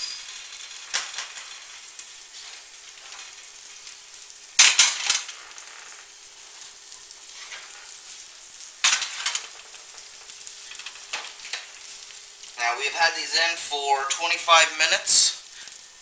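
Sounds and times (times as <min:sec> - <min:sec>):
baking pans clattering: 0:00.0 - 0:03.9, 0:04.6 - 0:06.6, 0:07.2 - 0:08.1, 0:08.8 - 0:12.0
faint hiss: 0:00.0 - 0:16.0.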